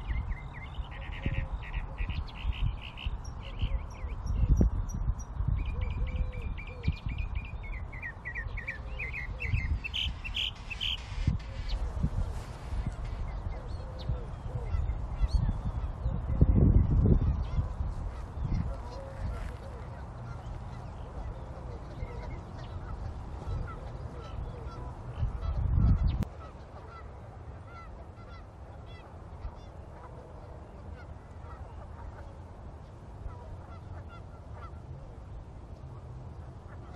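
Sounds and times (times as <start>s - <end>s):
small birds chirping: 0.0s - 11.8s
low outdoor rumble: 0.0s - 36.9s
birds honking: 8.0s - 11.8s, 17.3s - 34.9s.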